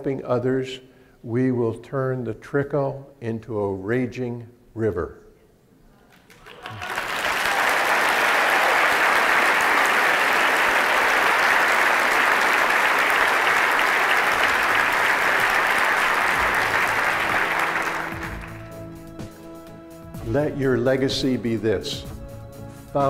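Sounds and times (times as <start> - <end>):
audience applauding: 6.1 - 19.2.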